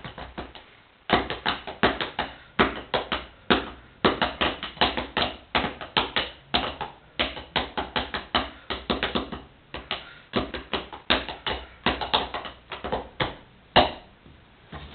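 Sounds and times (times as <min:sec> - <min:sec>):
drumsticks tapping on sneakers: 0:00.0 - 0:14.1.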